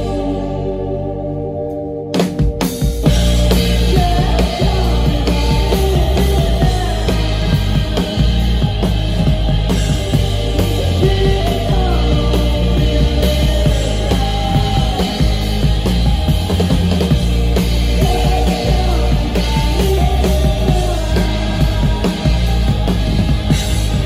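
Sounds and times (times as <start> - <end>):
bass guitar: 0.0 - 24.0
electric guitar: 0.0 - 24.0
drum kit beat: 2.1 - 24.0.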